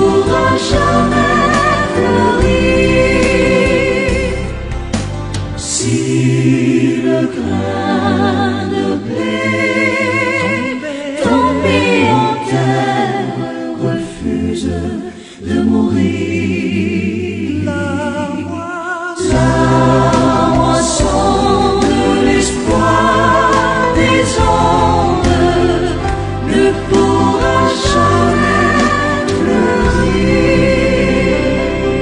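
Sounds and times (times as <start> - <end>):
choir singing a hymn: 0.0 - 5.0, 5.6 - 32.0
low bass notes: 0.0 - 6.7, 19.2 - 32.0.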